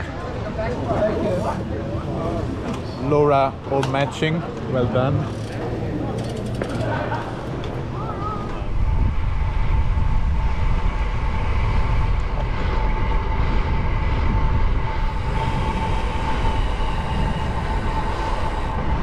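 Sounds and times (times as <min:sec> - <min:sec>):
thin steady whine: 0:00.0 - 0:19.0
wind buffeting microphone: 0:05.2 - 0:19.0.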